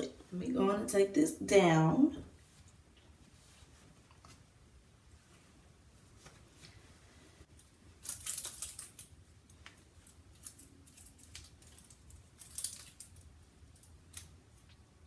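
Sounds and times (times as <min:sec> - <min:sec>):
fabric scarf rustling: 0:02.3 - 0:07.6
metal hair pins clicking: 0:10.3 - 0:14.3.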